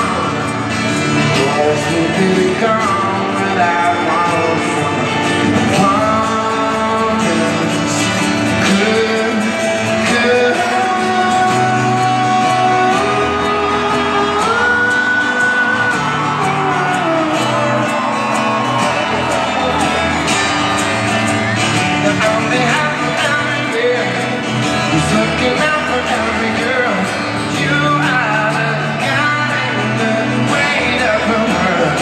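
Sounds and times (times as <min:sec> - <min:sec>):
live acoustic guitar music: 0:00.0 - 0:32.0
audience shouting: 0:13.1 - 0:22.9.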